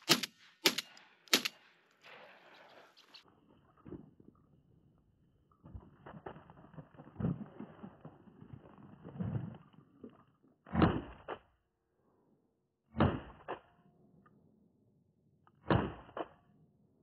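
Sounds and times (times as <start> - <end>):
shotgun shots: 0.0 - 1.6.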